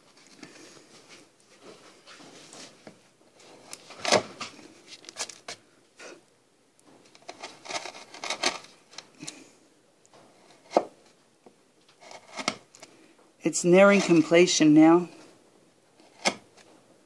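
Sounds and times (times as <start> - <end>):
wood chisel scraping cuts: 7.3 - 8.6, 12.0 - 12.6.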